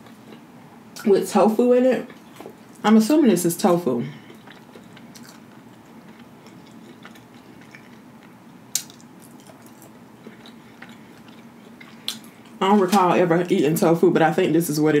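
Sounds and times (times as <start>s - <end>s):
chewing and mouth noises: 4.2s - 13.0s.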